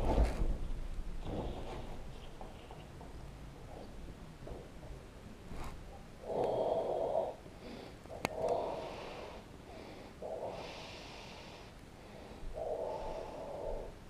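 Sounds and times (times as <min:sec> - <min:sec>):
person breathing heavily: 0:06.2 - 0:14.0.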